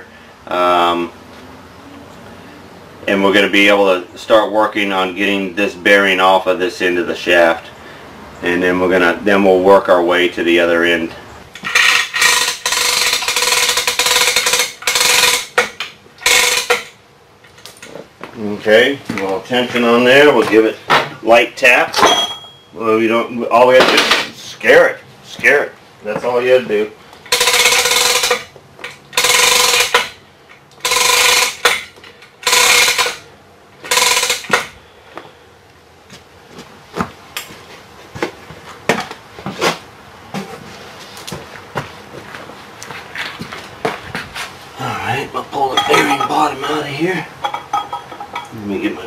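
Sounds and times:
hoist ratcheting clatter with whine: 11.6 - 17.0, 27.2 - 34.8.

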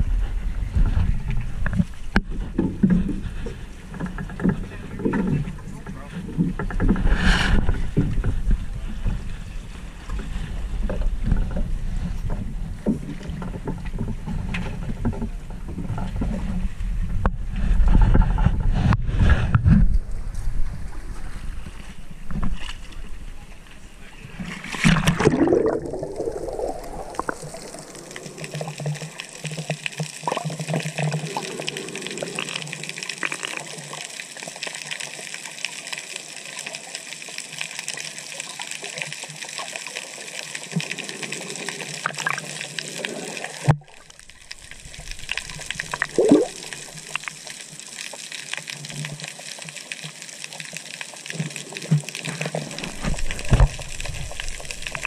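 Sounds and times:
underwater hiss with crackles: 6.6 - 13.8, 24.8 - 55.0
short underwater gurgles: 24.4 - 33.5, 42.0 - 47.2
water splash: 24.4 - 34.0, 41.6 - 47.5.

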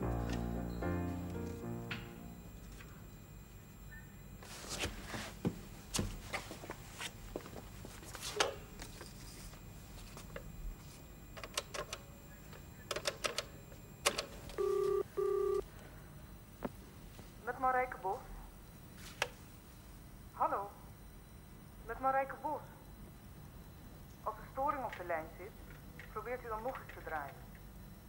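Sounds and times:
telephone keys clicking: 12.9 - 14.8
telephone tone pulses: 13.4 - 15.6.

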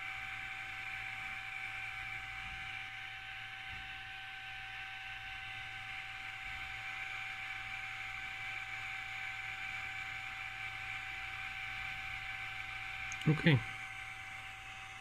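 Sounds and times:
high whine: 11.4 - 15.0.

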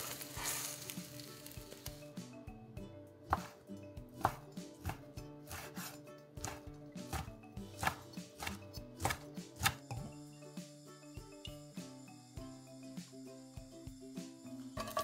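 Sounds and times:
light background music: 0.0 - 15.0.

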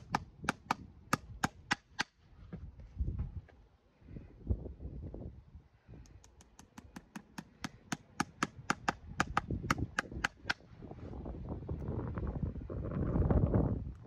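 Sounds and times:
hammer tapping horseshoe nail: 0.0 - 2.1, 6.2 - 10.6.

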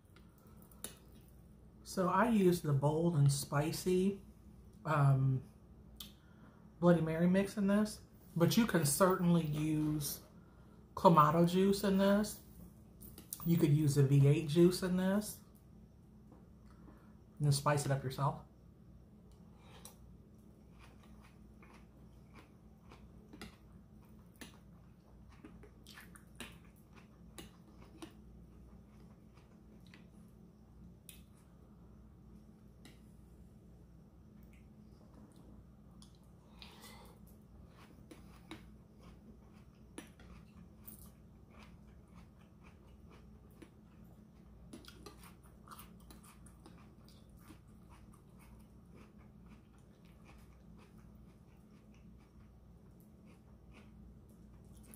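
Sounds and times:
steady low hum: 0.0 - 54.9
chewing and wet mouth sounds: 12.5 - 13.6, 19.0 - 31.6, 34.2 - 54.9.

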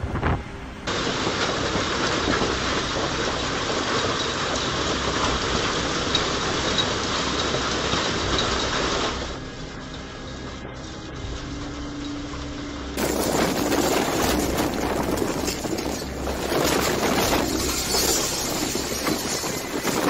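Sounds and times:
wind buffeting microphone: 0.0 - 4.6, 13.0 - 20.0
hail falling: 0.9 - 9.2, 13.0 - 20.0.

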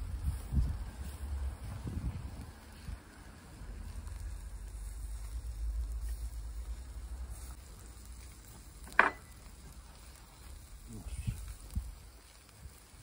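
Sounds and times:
low rumble: 0.0 - 8.3
meat sizzling on a grill: 0.0 - 13.0.

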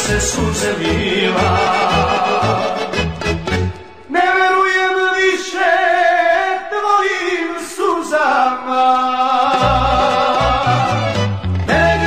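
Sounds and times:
slow folk melody: 0.0 - 4.8, 9.3 - 12.0.

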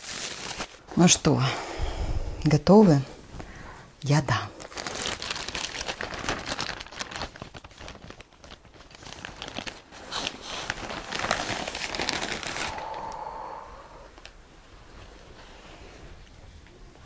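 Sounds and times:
plastic bag crinkling: 0.0 - 1.1, 4.2 - 13.3.

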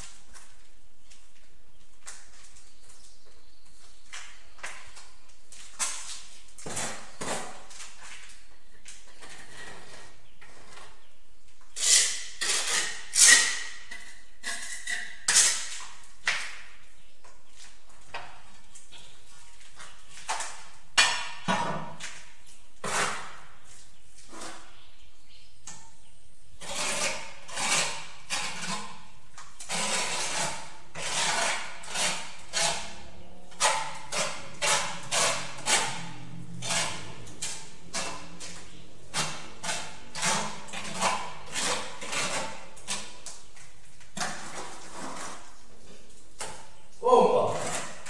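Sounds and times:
steel trowel scraping mortar: 11.8 - 16.0, 26.6 - 43.4, 44.1 - 45.7, 47.4 - 48.0.

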